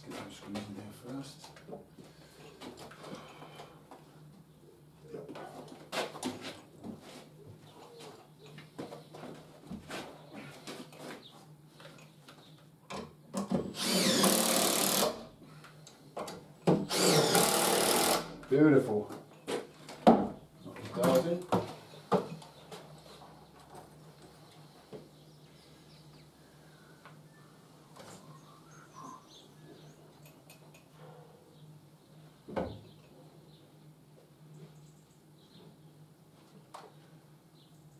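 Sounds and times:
cordless drill driving screws: 0:13.8 - 0:15.2, 0:16.9 - 0:18.4.

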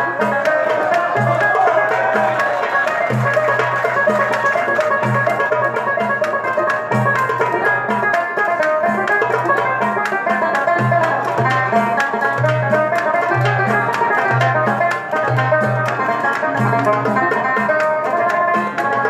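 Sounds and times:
banjo picking a melody: 0:00.0 - 0:19.0.

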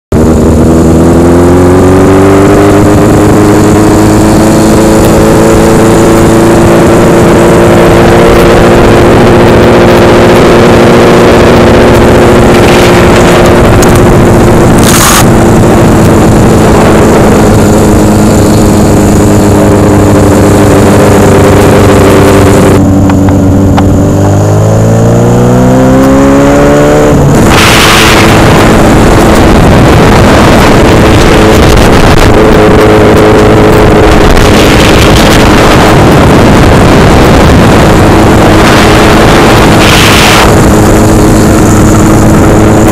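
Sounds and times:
motorcycle engine: 0:00.0 - 0:42.9.

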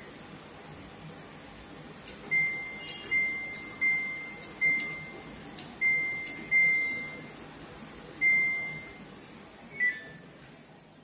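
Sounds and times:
high-pitched beeps: 0:02.3 - 0:07.3, 0:08.2 - 0:09.0.

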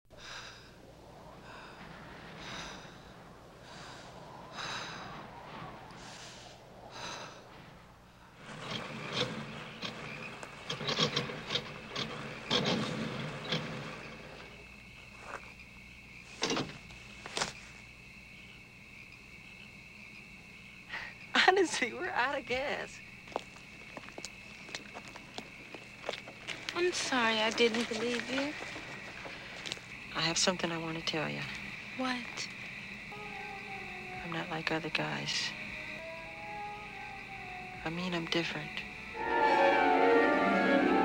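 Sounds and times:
crickets chirping: 0:00.1 - 0:41.0.

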